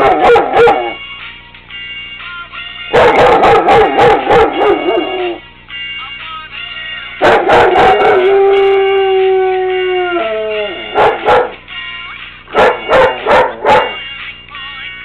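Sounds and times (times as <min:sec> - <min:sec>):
dog barking: 0:00.0 - 0:01.0, 0:02.9 - 0:05.2, 0:07.2 - 0:08.2, 0:10.9 - 0:11.6, 0:12.5 - 0:14.0
pop song: 0:00.7 - 0:08.9, 0:11.0 - 0:15.0
dog howling: 0:03.0 - 0:05.4, 0:07.2 - 0:11.6, 0:12.6 - 0:14.0.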